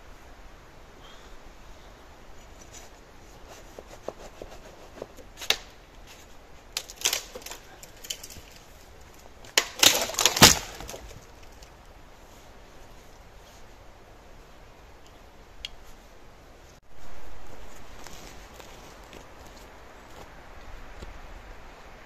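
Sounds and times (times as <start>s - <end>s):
sharp knocks and cracks: 5.0s - 5.8s, 6.7s - 11.7s.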